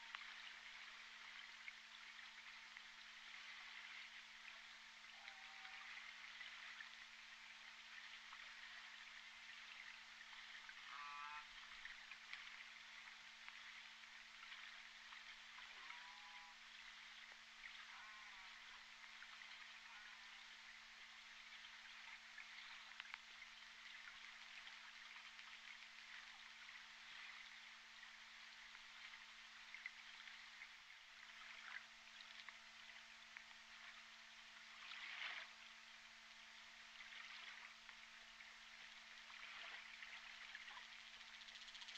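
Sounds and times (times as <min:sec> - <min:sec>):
hydrophone hiss and crackle: 0:00.0 - 0:41.9
orca call: 0:10.9 - 0:11.5.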